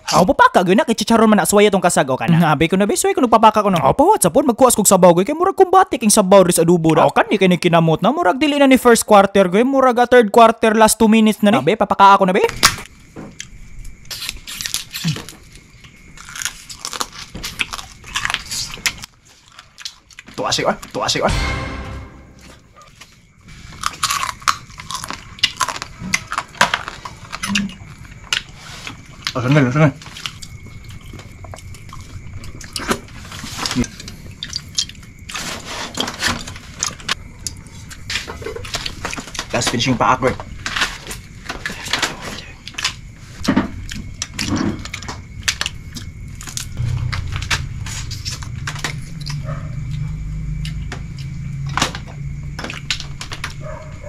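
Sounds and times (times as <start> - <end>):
low steady drone: 46.8 - 49.4.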